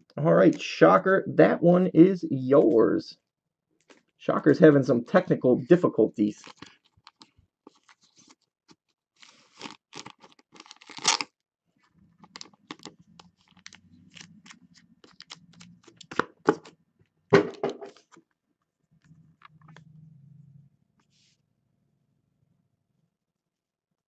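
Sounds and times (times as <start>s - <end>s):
plastic card sleeve rustling: 5.2s - 16.8s, 17.6s - 18.4s.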